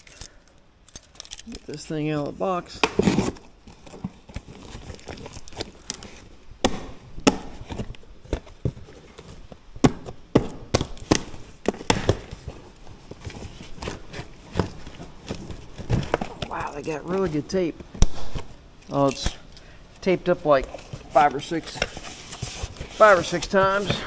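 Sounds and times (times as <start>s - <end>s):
packing tape ripping: 2.8s - 6.2s
cardboard cracking and snapping: 2.8s - 8.6s.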